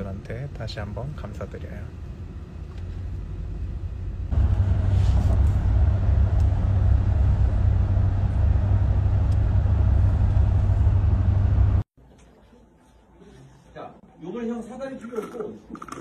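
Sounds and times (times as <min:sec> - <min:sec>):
car road noise rumble: 0:02.1 - 0:11.8.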